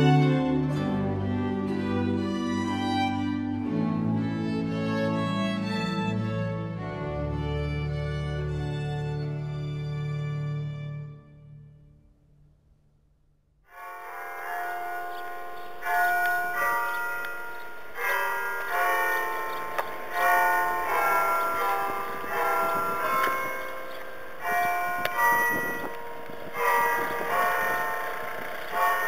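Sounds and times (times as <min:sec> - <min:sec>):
church bells ringing: 0:00.0 - 0:04.0, 0:13.7 - 0:29.0.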